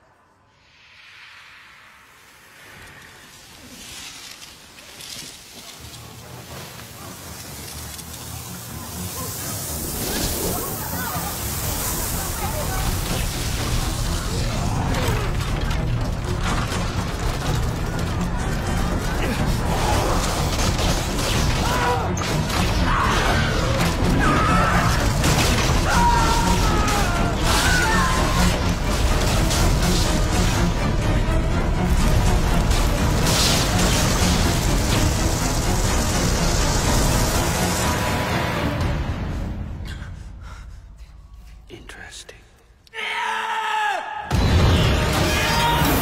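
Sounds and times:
people screaming in panic: 0:21.6 - 0:28.6, 0:45.2 - 0:46.0.

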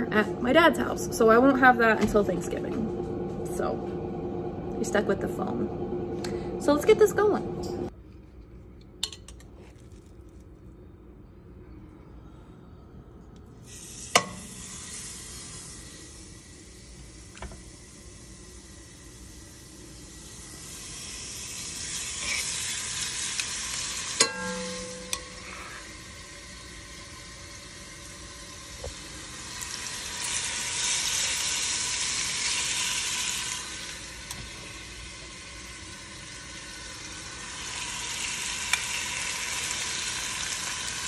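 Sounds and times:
food sizzling in pan: 0:13.7 - 0:41.0.

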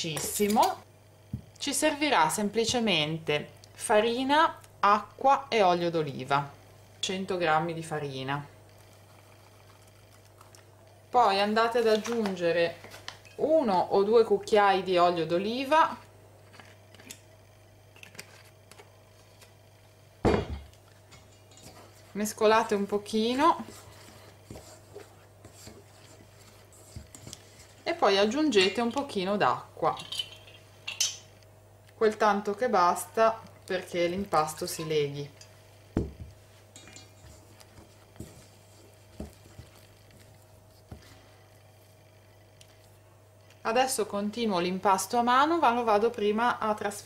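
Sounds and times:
kitchenware knocking on table: 0:20.3 - 0:20.7
spatula scraping a steel bowl: 0:23.2 - 0:27.7.

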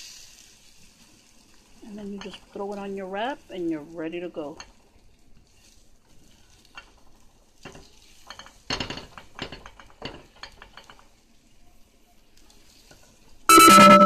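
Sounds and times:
utensil scraping a frying pan: 0:00.0 - 0:03.7, 0:04.3 - 0:11.3
faint sizzle: 0:00.0 - 0:14.0.

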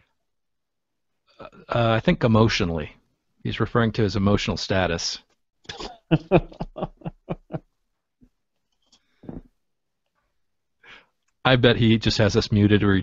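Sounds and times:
man laughing: 0:05.7 - 0:07.8.

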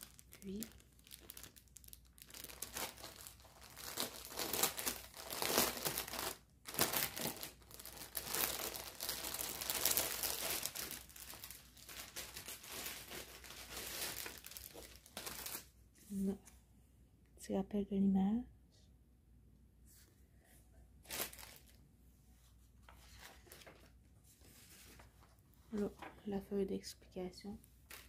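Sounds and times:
plastic packaging crinkling: 0:00.0 - 0:15.7, 0:21.1 - 0:21.8.

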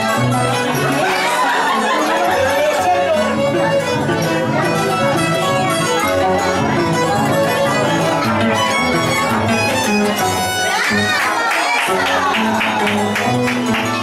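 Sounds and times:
harp plucked chords: 0:00.0 - 0:11.2
bowed violin melody: 0:00.0 - 0:14.0.

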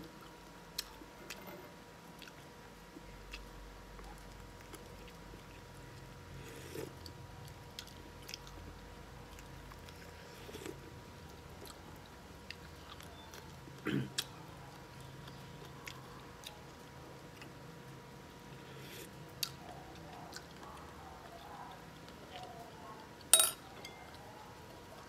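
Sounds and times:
faint steady hum: 0:00.0 - 0:25.0
man chewing: 0:02.1 - 0:03.5.

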